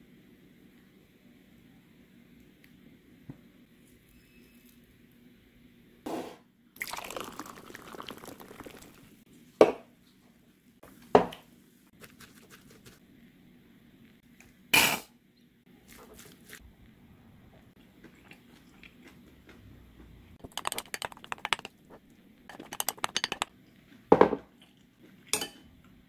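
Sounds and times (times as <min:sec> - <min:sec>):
fizzy drink pouring into glass: 0:06.8 - 0:09.1.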